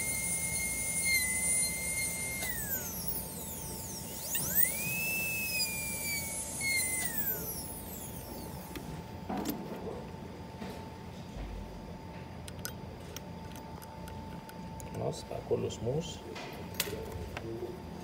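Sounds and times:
dental drill whining: 0:00.0 - 0:09.1.

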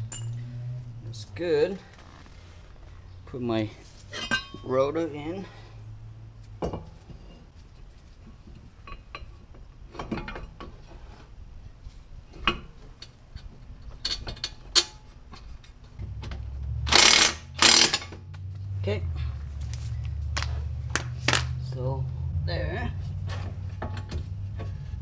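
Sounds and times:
metal clinks and knocks: 0:00.0 - 0:00.6, 0:04.0 - 0:04.7, 0:08.2 - 0:10.8, 0:12.4 - 0:18.5, 0:23.2 - 0:25.0
impact wrench burst: 0:16.9 - 0:18.1.

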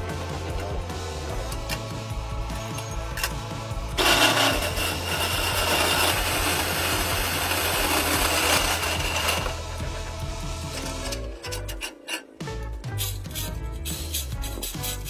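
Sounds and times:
wood lathe whirring: 0:03.9 - 0:12.3.

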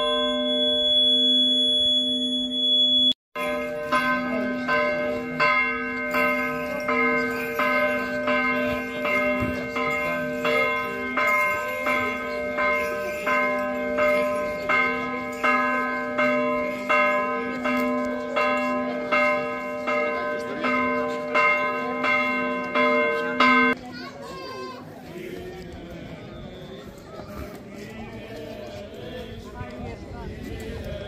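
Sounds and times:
church bell ringing: 0:00.0 - 0:23.8.

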